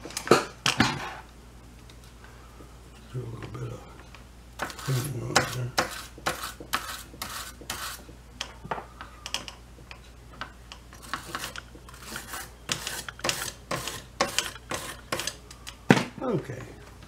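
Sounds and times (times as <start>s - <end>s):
scratchy scrubbing on circuit board: 4.6s - 8.0s, 11.0s - 15.4s.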